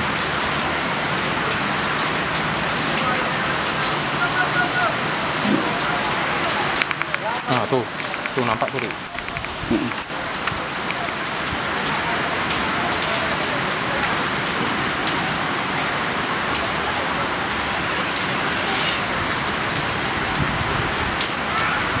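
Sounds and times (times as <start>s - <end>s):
falling water hiss: 4.2s - 13.6s
faint ticks: 6.8s - 7.3s, 7.9s - 11.2s.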